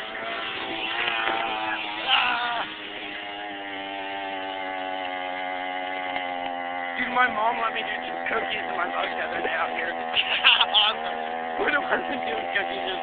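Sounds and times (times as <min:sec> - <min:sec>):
mini bike engine at high revs: 0:00.0 - 0:13.0.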